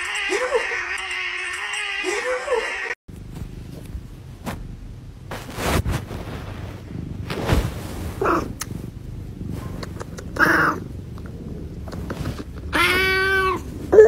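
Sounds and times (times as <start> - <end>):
handling rustles: 3.1 - 8.8
cat purring: 6.0 - 12.8
cat high-pitched calls: 12.7 - 13.7.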